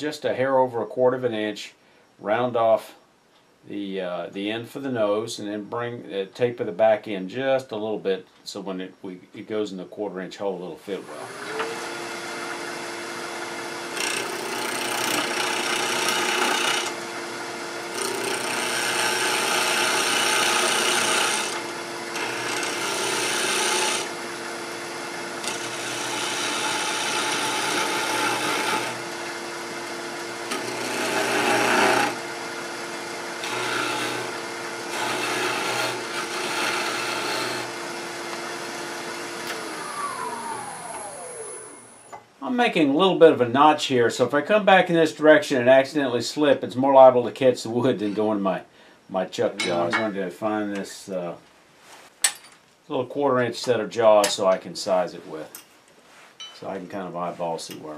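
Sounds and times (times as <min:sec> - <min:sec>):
turning tool scraping wood: 0:11.0 - 0:17.1, 0:17.8 - 0:41.6
wood lathe motor whine: 0:11.0 - 0:42.1.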